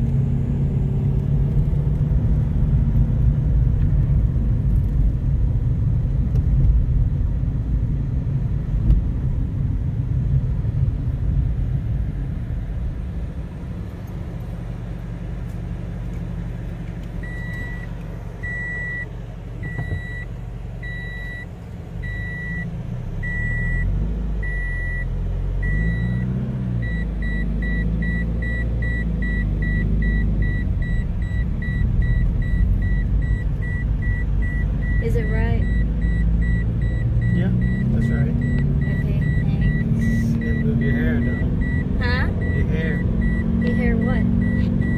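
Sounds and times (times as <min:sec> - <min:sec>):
car engine running: 0:00.0 - 0:44.9
road rumble: 0:00.0 - 0:44.9
dashboard warning chime beeping: 0:17.2 - 0:44.9.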